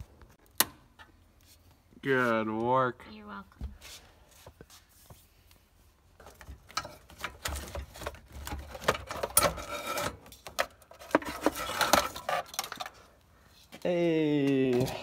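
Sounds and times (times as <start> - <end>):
wiring and plastic connectors handled: 5.4 - 15.0.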